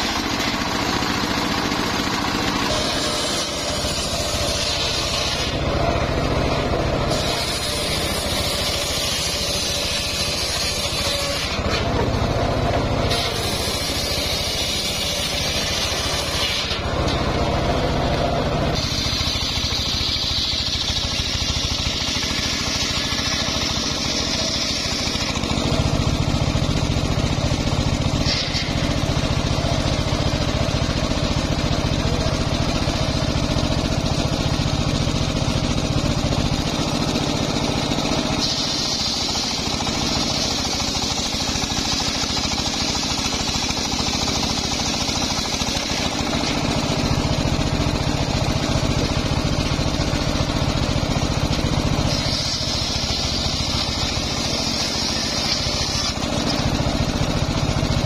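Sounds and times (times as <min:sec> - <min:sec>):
circular saw ripping log: 0:00.0 - 0:29.9, 0:35.4 - 0:50.1, 0:50.7 - 0:58.0
engine labouring under load: 0:00.0 - 0:58.0
high saw blade whine: 0:00.0 - 0:58.0.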